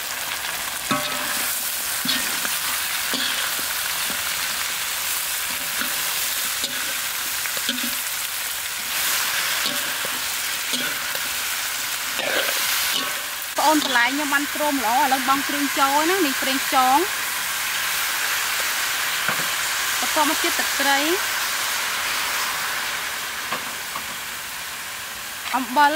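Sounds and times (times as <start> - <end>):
vegetables sizzling in a wok: 0.0 - 25.9
metal spatula scraping a pan: 0.9 - 4.6, 5.4 - 8.1, 8.8 - 14.3.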